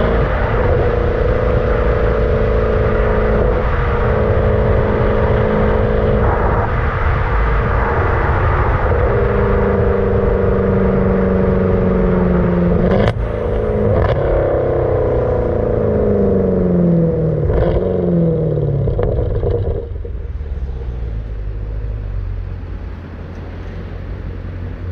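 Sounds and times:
car engine running: 0.0 - 24.9.

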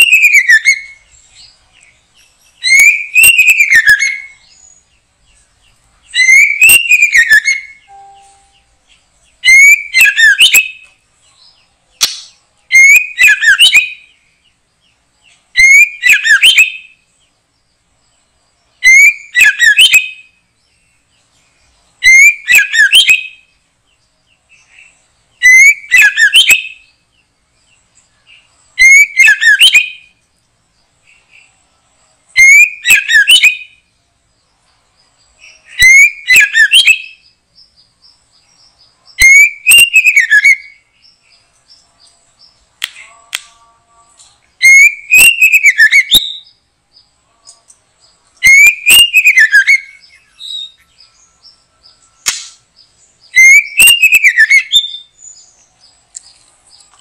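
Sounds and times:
bird whistle and chattering call: 0.0 - 1.0, 2.6 - 4.4, 6.1 - 8.6, 9.4 - 10.9, 12.0 - 14.1, 15.6 - 16.9, 18.8 - 20.3, 22.0 - 23.4, 25.4 - 26.9, 28.8 - 30.1, 32.4 - 33.8, 35.4 - 37.3, 39.2 - 40.8, 44.6 - 46.6, 48.4 - 50.8, 53.2 - 55.4.

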